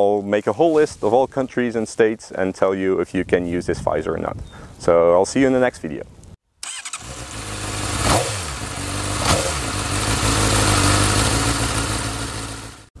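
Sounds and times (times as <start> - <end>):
motorcycle engine running: 6.9 - 13.0.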